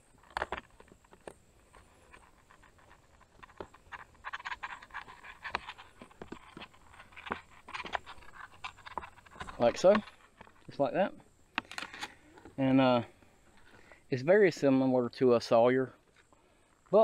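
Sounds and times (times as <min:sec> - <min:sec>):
plastic clicking and crinkling: 0:00.0 - 0:10.8, 0:11.5 - 0:12.6.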